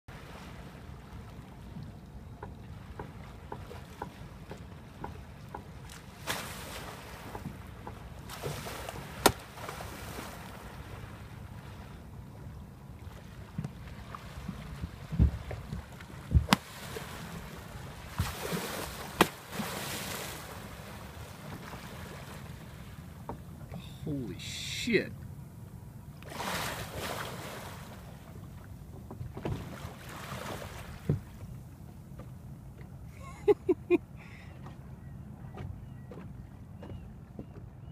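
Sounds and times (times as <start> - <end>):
water slapping boat hull: 0.1 - 25.1, 26.2 - 33.8
wind rumble on microphone: 13.6 - 16.6.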